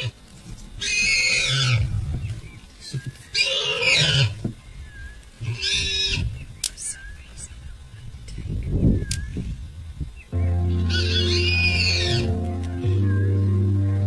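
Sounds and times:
wild animal calling: 0:03.3 - 0:04.4, 0:10.4 - 0:14.0.

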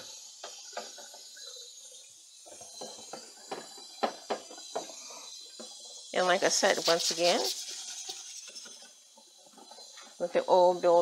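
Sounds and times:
sponge scrubbing metal: 0:06.2 - 0:08.9.

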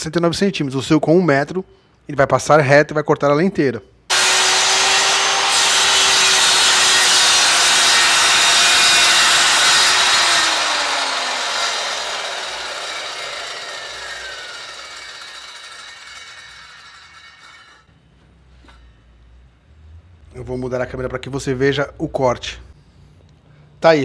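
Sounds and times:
circular saw cutting board: 0:04.1 - 0:17.9.

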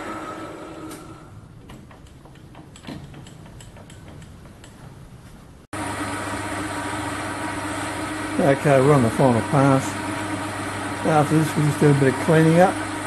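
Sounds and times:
lathe running and spinning down: 0:00.0 - 0:01.3, 0:05.8 - 0:13.0
lathe boring metal: 0:05.8 - 0:13.0.

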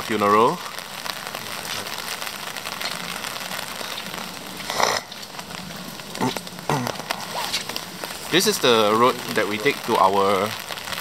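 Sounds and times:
steady hiss with crackles: 0:00.0 - 0:11.0.

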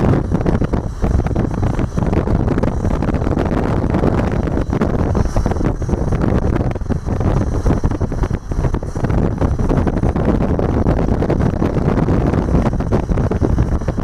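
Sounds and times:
tyre road noise: 0:00.0 - 0:14.0
wind buffeting microphone: 0:00.0 - 0:14.0.

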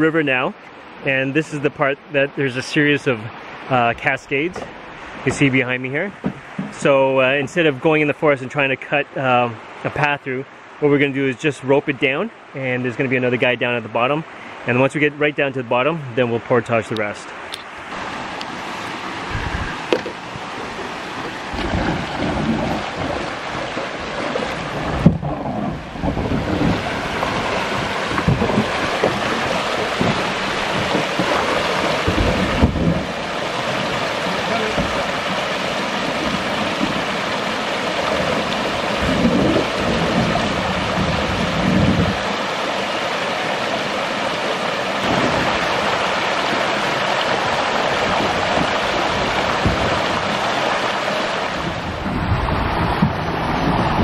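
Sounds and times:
water rushing over rocks: 0:00.0 - 0:54.0
low thumps and rumbles: 0:19.2 - 0:42.3, 0:45.0 - 0:50.6, 0:51.5 - 0:54.0.

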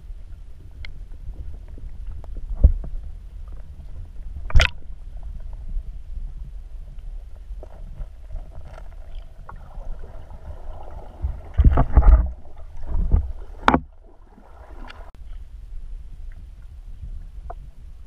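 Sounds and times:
muffled underwater rumble: 0:00.0 - 0:18.0
heavy thumps and sloshes: 0:07.6 - 0:15.2.

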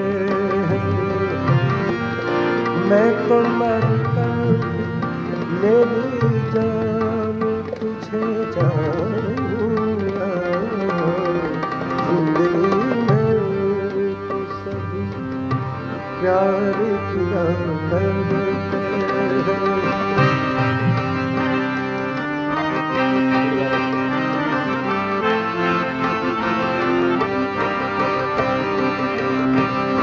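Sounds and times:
man singing: 0:00.0 - 0:15.4, 0:16.1 - 0:20.8, 0:22.9 - 0:24.8
harmonium: 0:00.0 - 0:30.0
tabla: 0:00.0 - 0:30.0.

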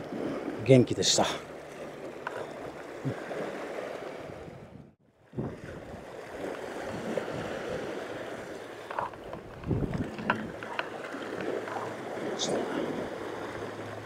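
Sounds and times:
wind buffeting microphone: 0:01.4 - 0:14.0
sea washing against rocks: 0:05.4 - 0:14.0.

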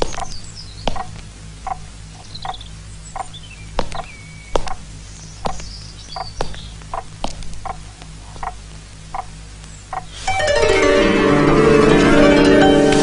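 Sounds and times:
small animal calls: 0:00.0 - 0:10.2
low steady hum: 0:00.0 - 0:13.0.

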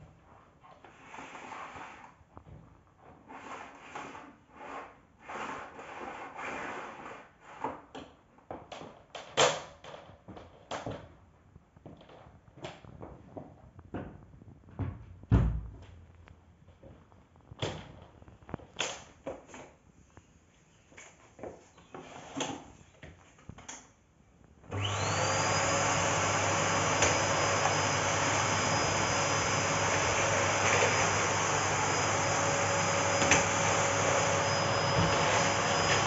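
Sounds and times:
clicks and rustles of handling vacuum: 0:11.8 - 0:19.8, 0:24.7 - 0:36.0.

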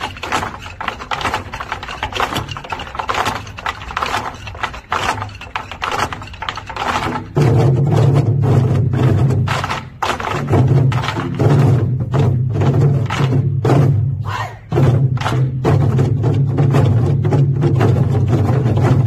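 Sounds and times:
sticks clacking: 0:00.0 - 0:07.4, 0:09.5 - 0:11.4
barrel drums booming: 0:07.0 - 0:19.0.

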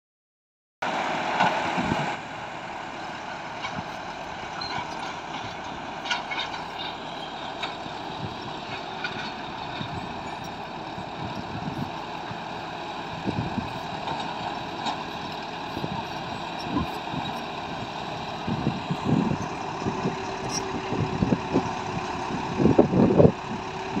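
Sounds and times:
bulldozer diesel engine running: 0:00.8 - 0:24.0.

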